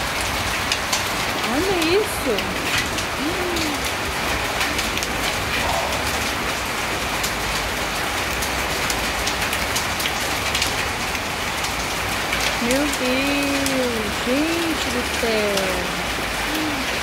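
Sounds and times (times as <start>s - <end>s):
hail and rain on tile roofs: 0.0s - 17.0s
sharp ticks of hail impacts: 4.6s - 16.7s.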